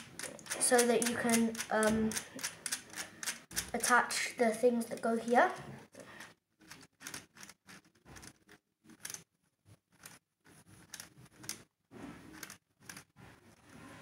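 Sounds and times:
plastic gears clicking: 0.0s - 3.9s, 6.2s - 9.3s, 9.9s - 11.7s, 12.3s - 13.2s.

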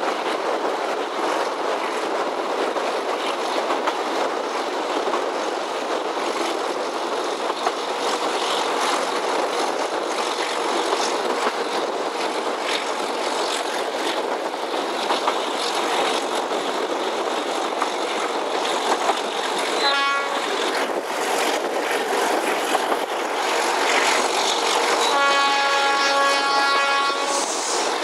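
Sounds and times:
train wheel and rail noise: 0.0s - 28.0s
locomotive horn: 19.8s - 20.6s, 25.0s - 27.8s.

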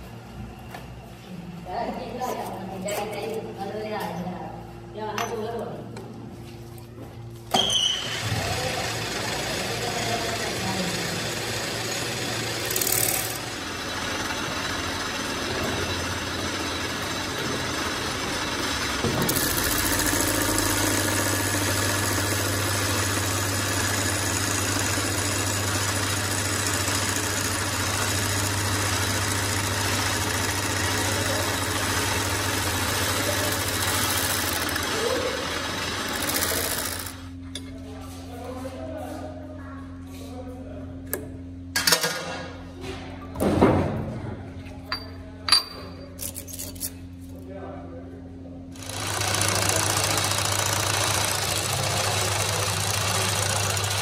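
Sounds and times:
metal lathe cutting steel: 8.0s - 37.3s, 48.8s - 54.0s.

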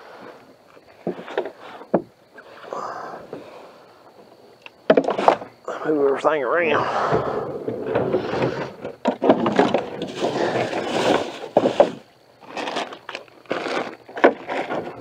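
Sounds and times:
gear knocking against canoe hull: 6.8s - 12.0s.

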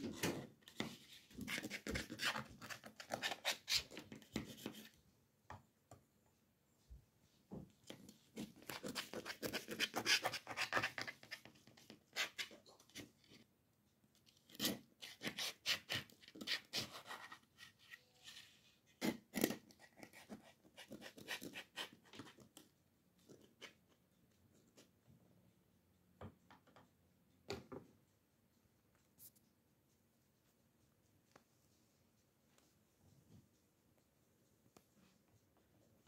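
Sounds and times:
knife crackling through pastry: 8.4s - 11.4s, 14.4s - 18.2s.

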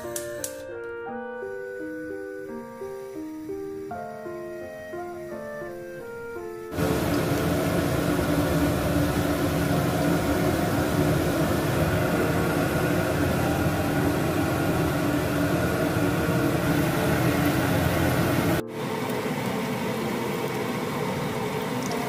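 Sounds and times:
battered food frying in oil: 6.7s - 22.0s
constant hum: 6.7s - 22.0s.

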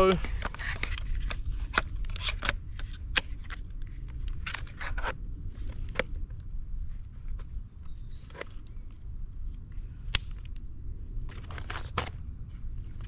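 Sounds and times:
steady low rumble: 0.0s - 13.0s
scrapes and plastic clicks: 0.2s - 6.4s, 11.2s - 12.2s.

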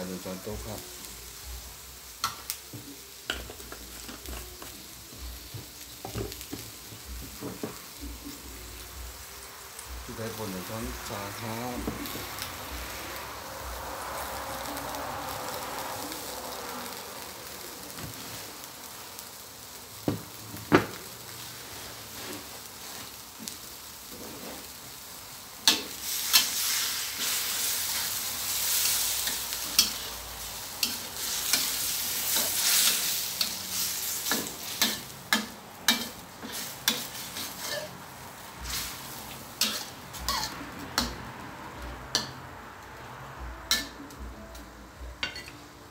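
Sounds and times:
food sizzling in a wok: 0.0s - 45.9s
metal spatula scraping a wok: 24.0s - 24.8s, 25.6s - 38.0s, 38.6s - 41.2s.

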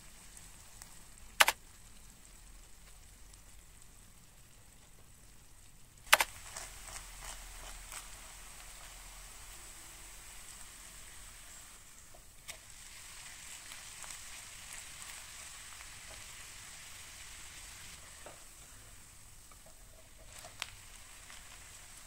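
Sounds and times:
pancake sizzling in oil: 0.0s - 22.0s
sharp ticks: 1.4s - 1.6s, 6.1s - 6.3s.

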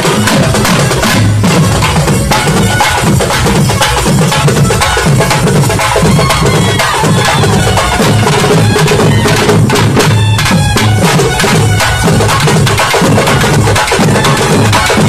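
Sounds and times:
barrel drums beaten fast: 0.0s - 15.0s
reedy wind instrument melody: 2.2s - 15.0s.

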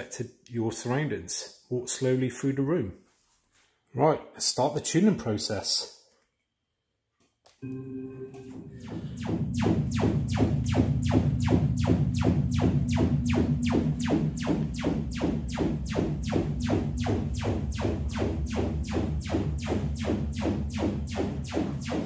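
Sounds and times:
speaker playing rising sweeps: 7.6s - 22.0s.

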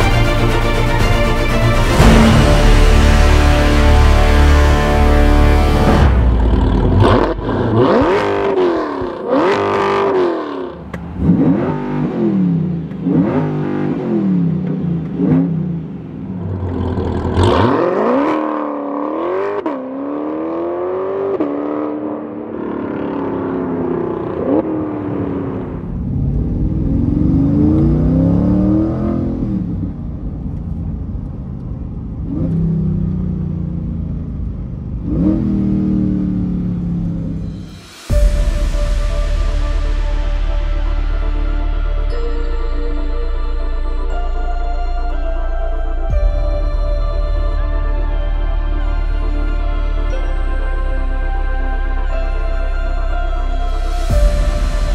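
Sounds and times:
car engine revving: 0.0s - 42.2s
car accelerating through gears: 6.5s - 29.9s.

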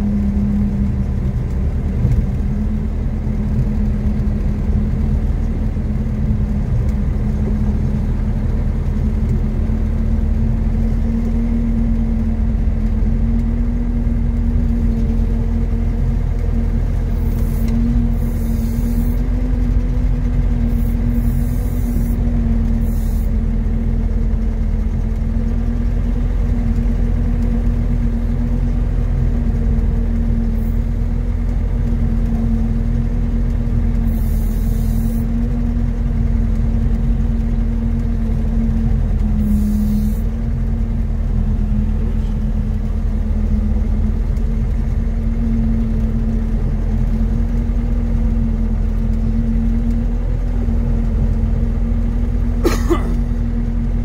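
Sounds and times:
heavy vehicle engine rumbling: 0.0s - 54.0s
short air hisses: 17.4s - 19.2s, 22.9s - 23.3s, 34.1s - 35.2s, 39.4s - 40.2s.

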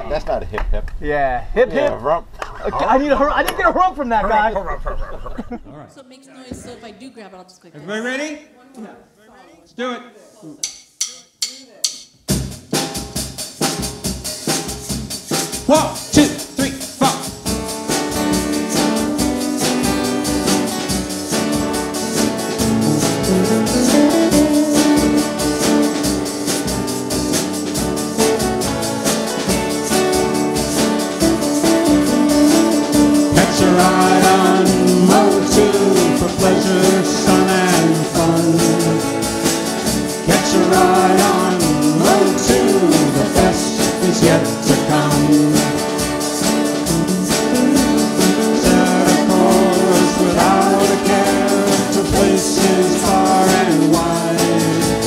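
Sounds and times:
live band playing: 11.3s - 55.0s
person singing: 22.6s - 26.1s, 29.8s - 55.0s.

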